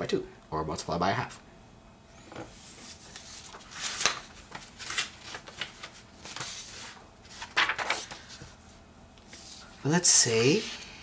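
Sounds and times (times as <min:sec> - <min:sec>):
paper rustling on a desk: 0:02.3 - 0:08.7, 0:09.3 - 0:10.8.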